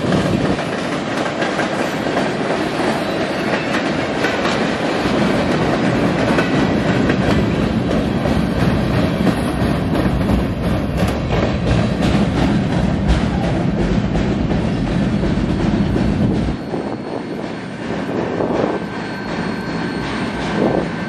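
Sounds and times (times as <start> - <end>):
wheels clicking over rail joints: 0.0 - 16.8
steel wheels rumbling on rail: 0.0 - 21.0.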